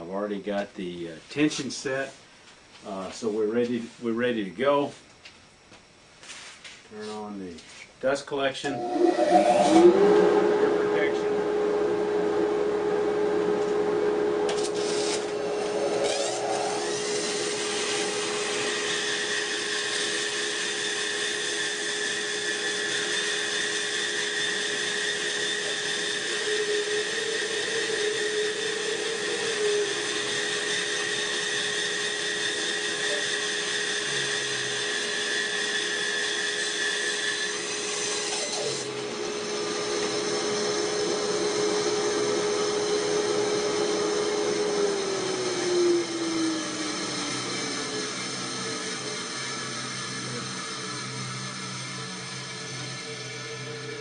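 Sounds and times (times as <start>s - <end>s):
bandsaw cutting through log: 8.6s - 10.2s, 14.7s - 54.0s
bandsaw motor spinning: 8.6s - 11.3s, 14.5s - 54.0s
dust collector running: 8.6s - 54.0s.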